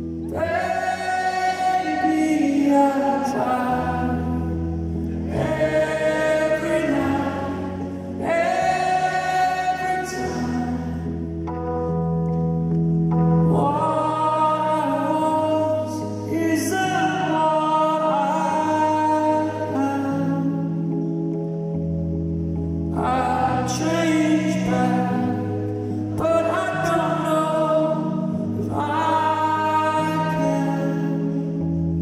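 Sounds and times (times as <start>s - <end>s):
keyboard chords: 0.0s - 32.0s
man singing a slow ballad: 0.3s - 5.6s, 6.2s - 11.3s, 13.4s - 21.0s, 22.9s - 31.7s.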